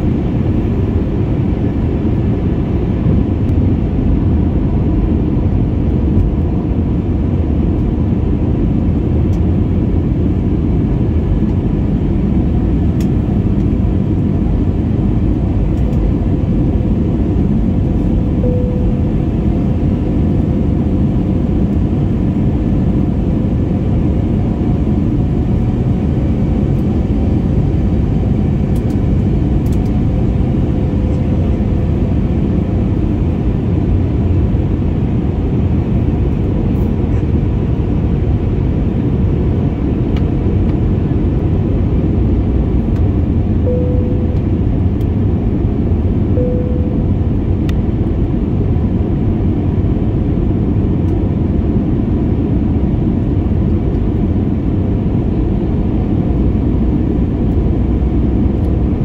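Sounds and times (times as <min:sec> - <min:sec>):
airplane cabin engine noise: 0:00.0 - 0:59.0
faint steady hum: 0:00.0 - 0:59.0.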